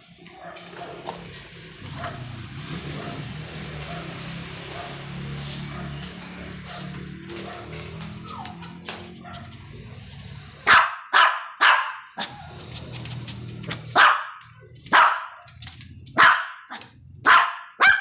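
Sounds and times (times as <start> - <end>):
small dog barking: 10.6 - 12.5, 13.9 - 15.5, 16.1 - 18.0.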